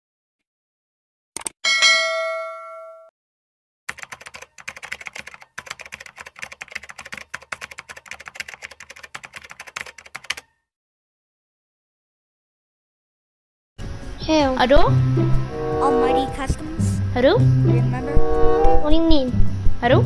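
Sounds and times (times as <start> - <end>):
ringing chime: 1.7 - 3.1
keyboard typing: 3.9 - 10.5.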